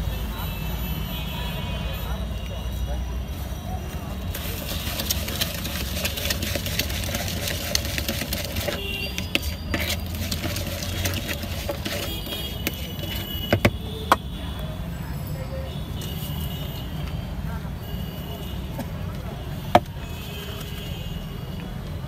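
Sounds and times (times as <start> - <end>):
street traffic rumble: 0.0 - 22.0
puffed rice stirred in plastic mug: 4.1 - 14.3.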